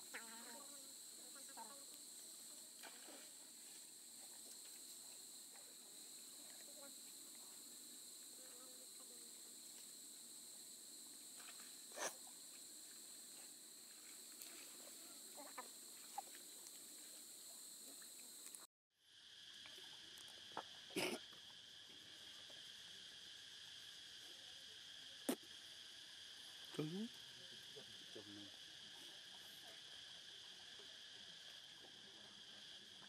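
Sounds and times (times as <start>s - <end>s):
insects buzzing: 0.0s - 33.0s
faint ticks: 17.8s - 18.7s.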